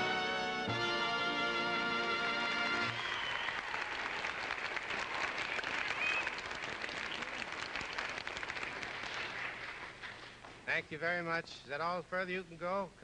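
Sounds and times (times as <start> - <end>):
audience applauding: 2.5 - 10.6.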